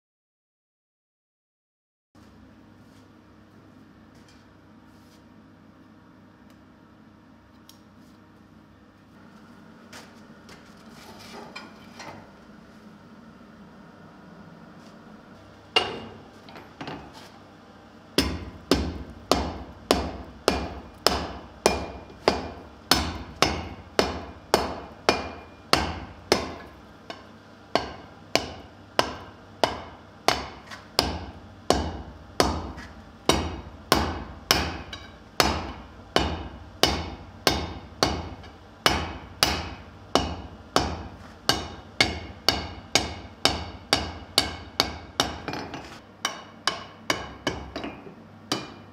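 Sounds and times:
hammer striking metal on anvil: 15.8 - 16.2, 18.2 - 48.9.

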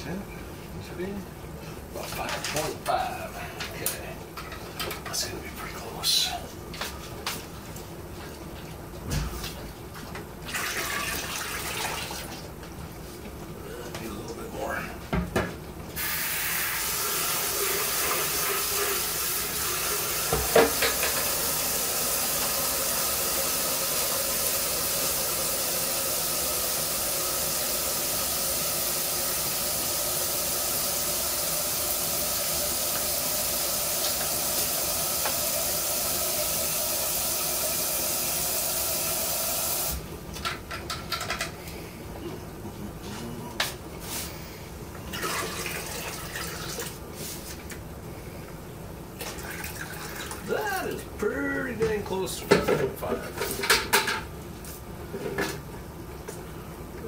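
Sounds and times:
kitchen tap running: 10.2 - 12.6, 16.0 - 41.4, 45.0 - 47.1, 49.2 - 54.2.

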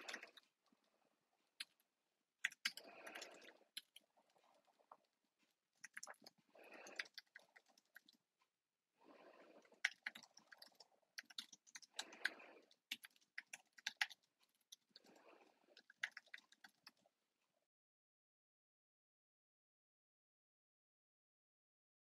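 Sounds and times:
faint keyboard typing: 0.0 - 0.6, 1.6 - 5.0, 5.8 - 8.2, 9.1 - 17.1.

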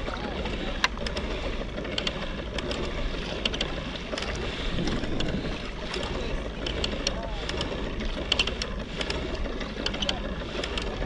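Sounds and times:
water lapping around a kayak: 0.0 - 11.0
wind buffeting the microphone: 4.4 - 6.5.

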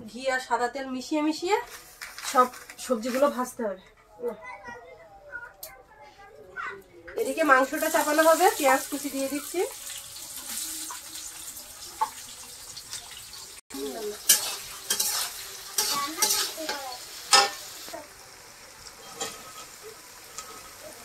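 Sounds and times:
food sizzling in hot oil: 7.2 - 21.0
scraping stirs in a pan: 7.3 - 18.0, 18.8 - 21.0.

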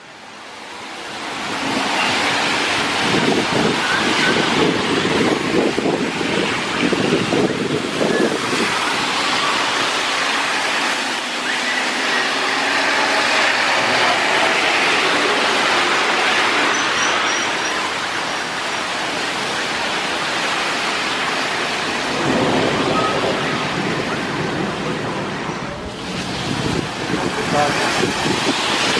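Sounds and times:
tyres hissing on wet asphalt: 0.0 - 28.9
bus engine passing: 0.2 - 22.6
wind buffeting microphone: 2.7 - 9.8, 22.0 - 28.9.

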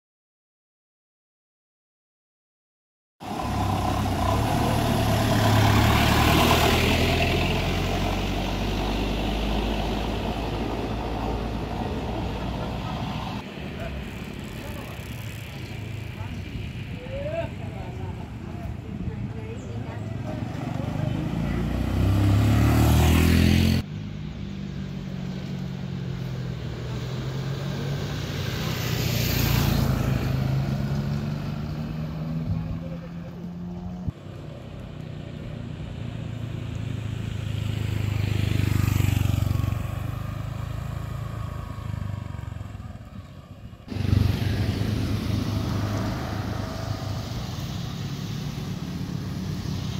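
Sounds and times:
heavy engine humming: 3.2 - 13.4
vehicle passing by: 3.2 - 49.9
broad rushing noise: 43.9 - 49.9.

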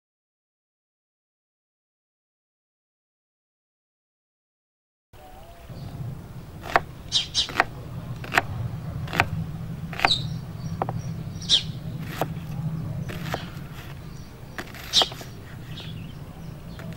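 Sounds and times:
knife slicing onion on board: 6.6 - 10.2, 12.0 - 12.4, 13.1 - 14.0, 14.6 - 16.0.

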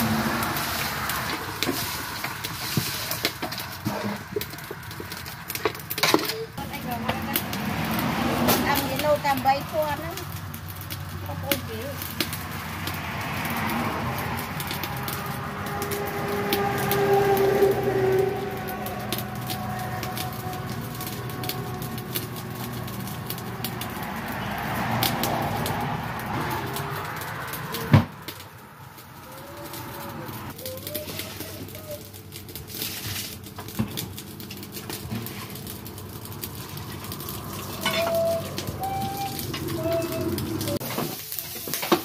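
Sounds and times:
bird calling: 37.8 - 40.7.

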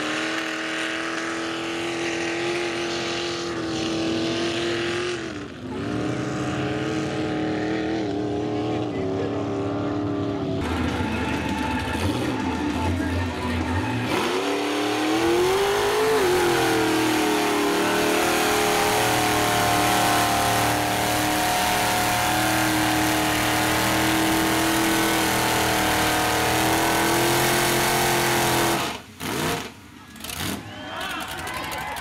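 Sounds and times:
truck engine at high revs: 0.0 - 30.9.

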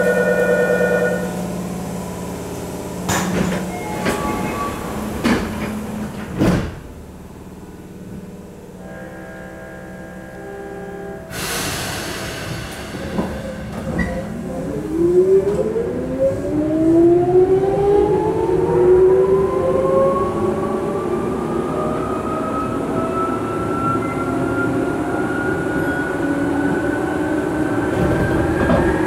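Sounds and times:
air hiss: 11.3 - 13.8.

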